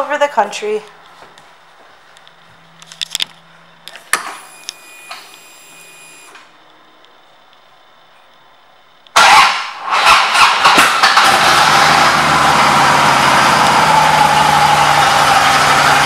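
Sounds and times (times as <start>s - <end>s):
high electric whine: 2.2s - 9.2s
motorcycle engine starting: 9.1s - 16.0s.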